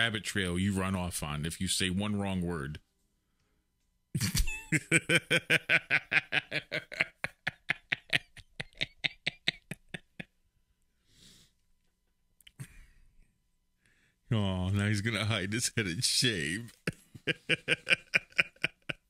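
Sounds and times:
man laughing: 4.2 - 10.3, 15.6 - 19.0.

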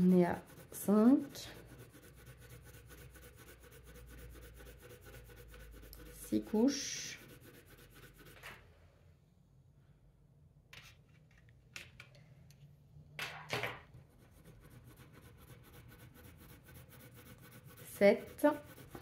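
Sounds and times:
pencil scratching on paper: 0.0 - 8.6, 14.0 - 19.0.

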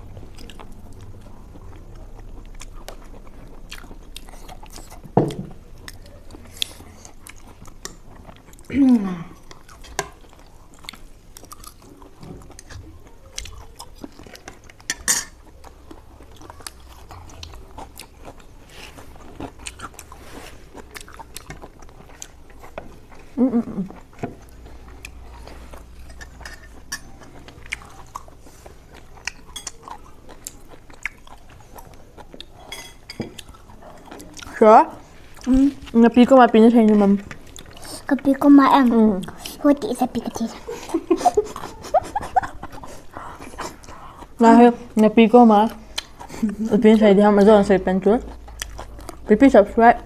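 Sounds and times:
chewing and biting: 0.1 - 8.7, 9.4 - 34.6, 48.2 - 49.4.

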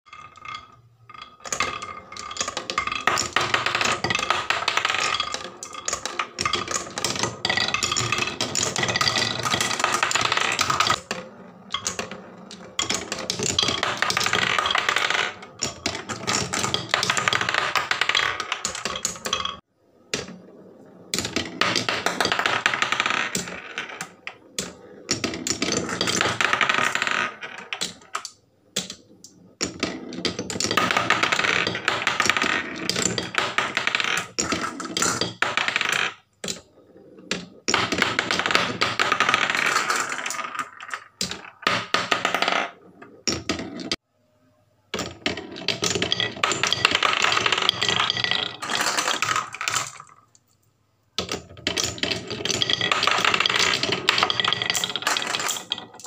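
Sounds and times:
glass marbles clattering on wooden run: 0.1 - 44.0, 45.0 - 50.4, 51.2 - 56.0.

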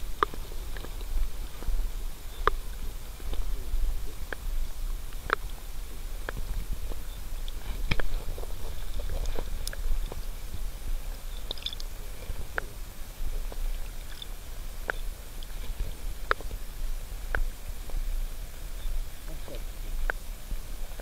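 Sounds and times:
underwater low rumble: 0.0 - 21.0
clicks and knocks underwater: 6.2 - 10.6, 11.2 - 12.7.

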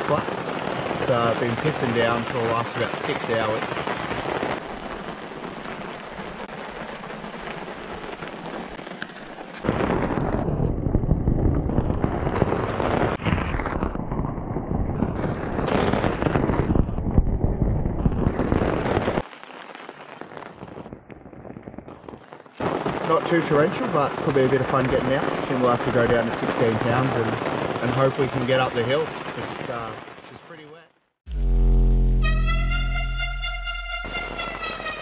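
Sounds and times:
steady rain falling: 0.0 - 13.9, 18.3 - 31.0
heavy rain drumming on canvas: 0.0 - 30.9.

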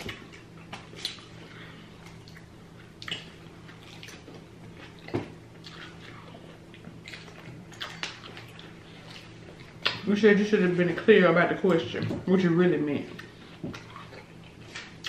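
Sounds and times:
wet chewing and smacking: 0.0 - 10.1, 13.1 - 15.0
steady low hum: 0.0 - 15.0.

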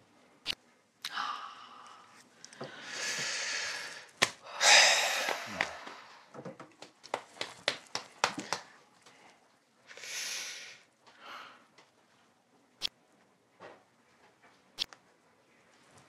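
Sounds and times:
person blowing out breaths: 2.6 - 6.3.

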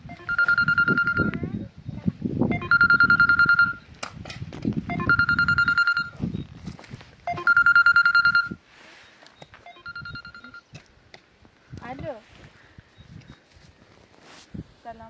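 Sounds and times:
telephone ringing: 0.0 - 1.5, 2.5 - 3.9, 4.9 - 6.2, 7.3 - 8.6, 9.6 - 10.7.

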